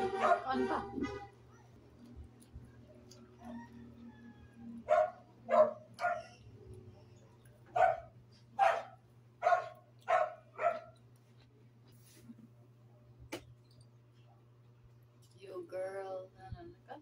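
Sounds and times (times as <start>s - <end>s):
dog barking: 0.1s - 0.6s, 4.8s - 6.4s, 7.7s - 11.0s.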